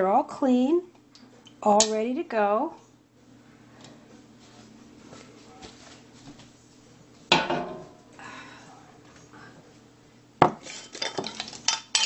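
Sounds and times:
faint shuffling and knocking: 3.9s - 8.0s
kitchenware clattering: 7.3s - 8.0s, 10.4s - 12.0s.

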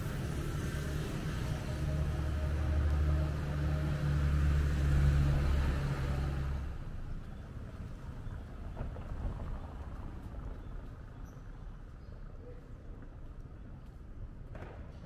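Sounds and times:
vehicle engine passing: 0.0s - 6.8s
faint street background: 0.0s - 15.0s.

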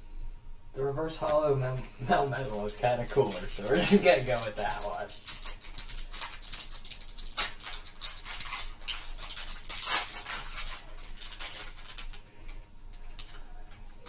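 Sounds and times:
trading cards rustling and sliding: 2.1s - 7.0s.

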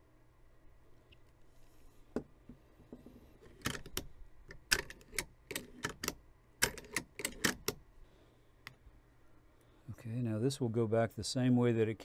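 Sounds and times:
rifle lever and bolt clicking: 3.4s - 7.8s.

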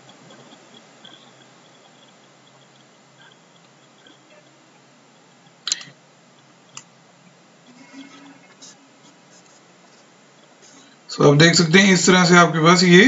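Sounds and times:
background hiss: 0.0s - 13.0s
sharp clicks: 5.2s - 7.0s.

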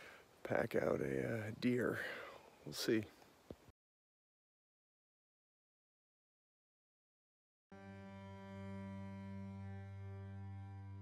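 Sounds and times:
low sustained drone music: 7.8s - 11.0s.

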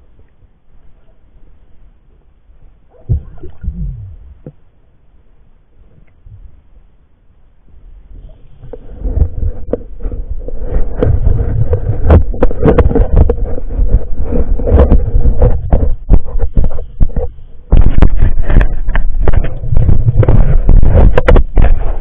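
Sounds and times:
steady underwater hum: 0.0s - 22.0s
underwater low rumble: 0.0s - 22.0s
underwater crackles and knocks: 2.9s - 4.7s, 5.8s - 6.7s, 7.6s - 22.0s.

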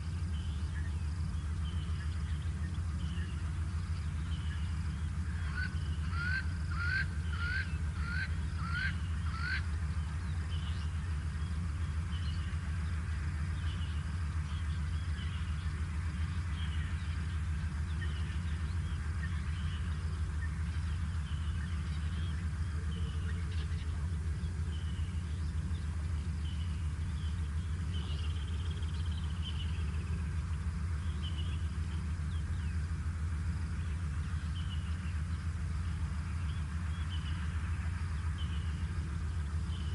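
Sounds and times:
birds chirping: 0.0s - 39.9s
steady low hum: 0.0s - 39.9s
hornbill calling rising notes: 5.3s - 9.7s.

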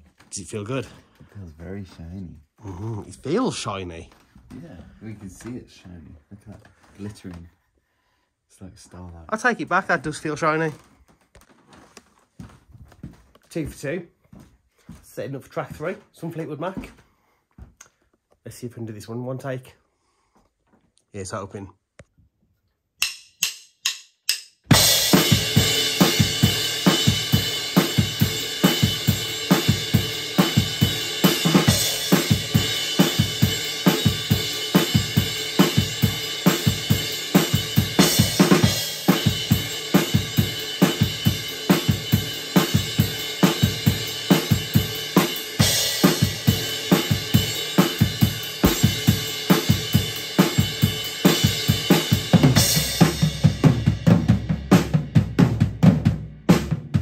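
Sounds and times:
drum kit playing a groove: 23.0s - 57.0s.

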